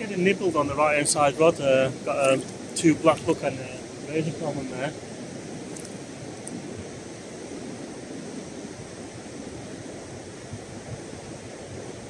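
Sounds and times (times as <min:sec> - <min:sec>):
surf breaking on beach: 0:00.0 - 0:12.0
wind on microphone: 0:00.0 - 0:12.0.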